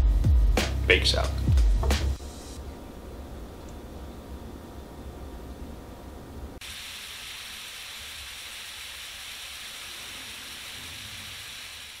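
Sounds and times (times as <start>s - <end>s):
meat sizzling in a skillet: 6.6s - 12.0s.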